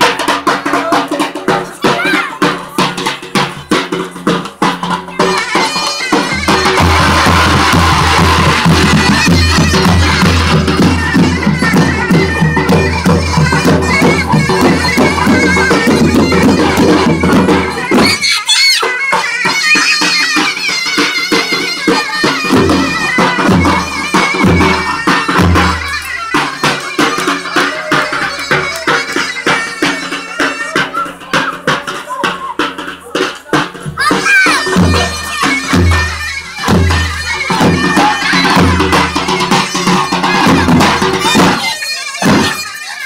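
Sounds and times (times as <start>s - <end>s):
bass drum beats: 0.0s - 18.2s.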